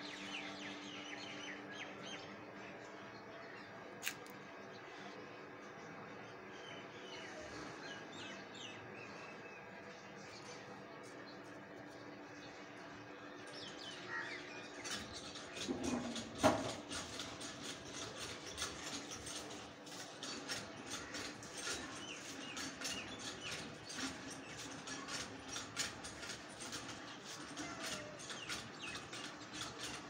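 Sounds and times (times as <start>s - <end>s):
small birds chirping: 17.2s - 30.0s.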